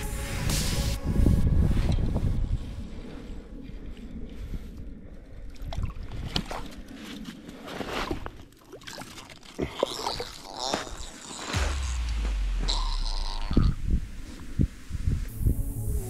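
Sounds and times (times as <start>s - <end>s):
knocks and crunches on snow: 10.1s - 15.1s.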